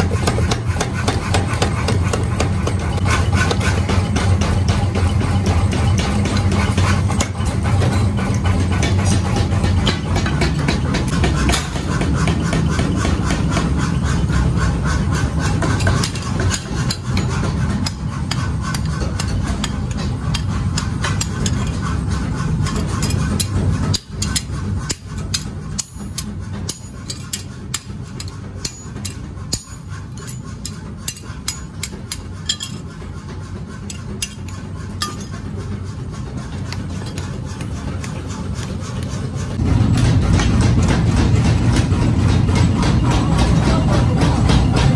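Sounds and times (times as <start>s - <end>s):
hammers striking steel on anvil: 0.0s - 44.9s.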